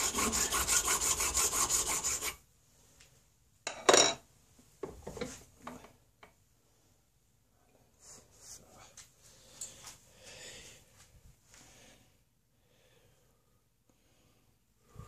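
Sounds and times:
hand file rasping on metal pipe: 0.0s - 2.4s.

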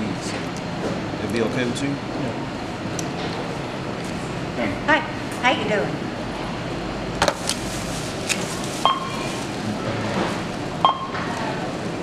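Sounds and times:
barcode scanner beeping: 8.8s - 9.2s.

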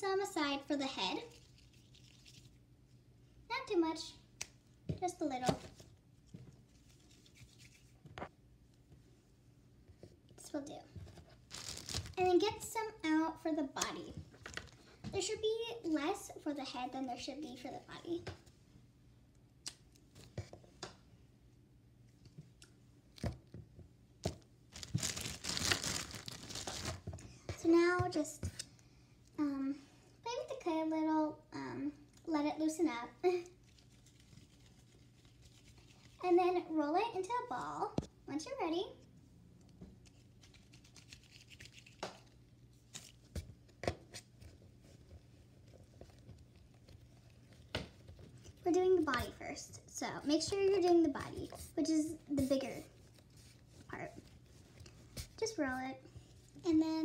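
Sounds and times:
rustling handling noise: 10.9s - 12.3s, 24.2s - 28.6s, 39.9s - 49.4s, 50.2s - 56.7s.

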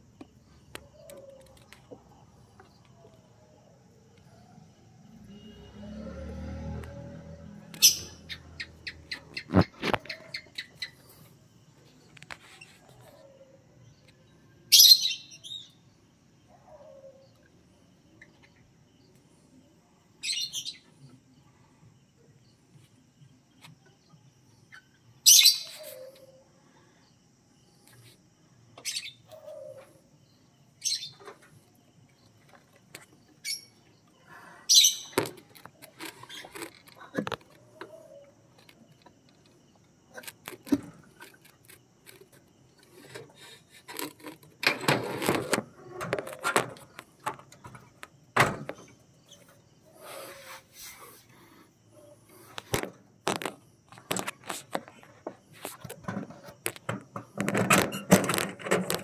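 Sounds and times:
lovebirds chirping shrilly: 7.7s - 11.2s, 25.2s - 26.2s, 34.7s - 35.2s
cage knocks and clicks: 55.9s - 59.0s.

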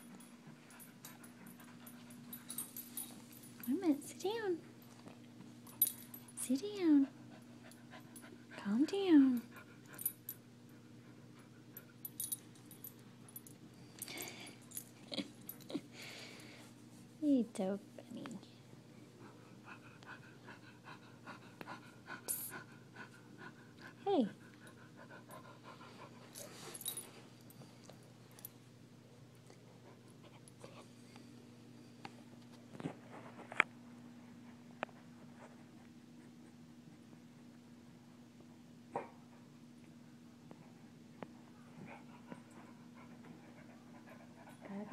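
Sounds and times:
faint steady hum: 0.0s - 44.9s
soft dog sound: 40.5s - 44.9s.

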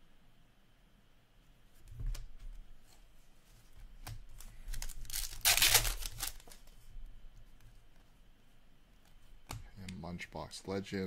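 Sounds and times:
cards clicking and rustling: 4.0s - 6.7s.

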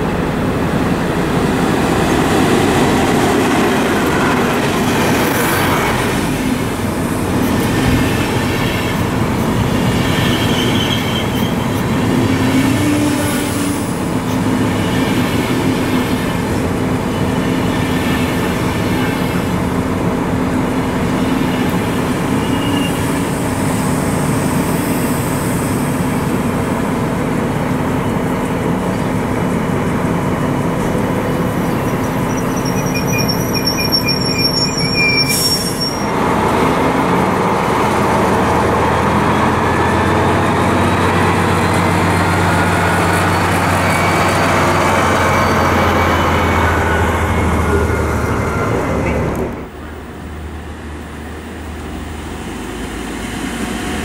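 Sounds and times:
diesel railcar approaching: 0.0s - 54.0s
locomotive engine drone: 0.0s - 54.0s
train coaches rolling past: 0.0s - 54.0s
high-pitched wheel squeals: 9.8s - 13.8s, 22.3s - 23.2s, 31.5s - 36.2s.

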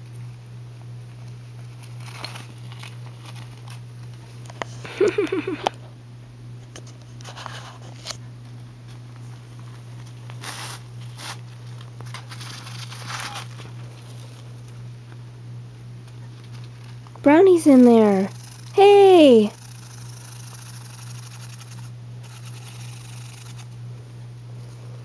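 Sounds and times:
plastic sheet rustling and crinkling: 1.8s - 4.2s, 10.3s - 14.5s.

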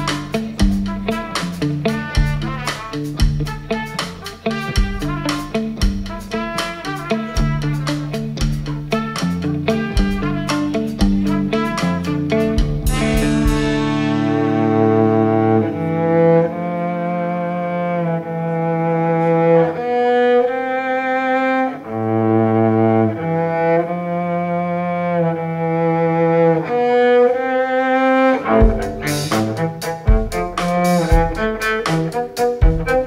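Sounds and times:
drum hits: 0.0s - 15.2s, 28.6s - 33.0s
cello playing long notes: 6.0s - 33.0s
cymbal crashes: 12.9s - 15.4s.

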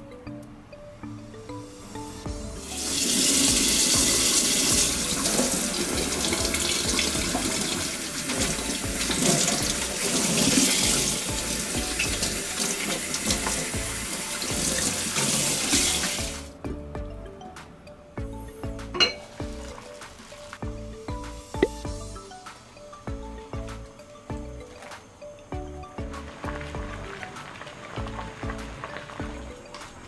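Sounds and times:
faucet water splashing into sink: 2.8s - 16.4s.

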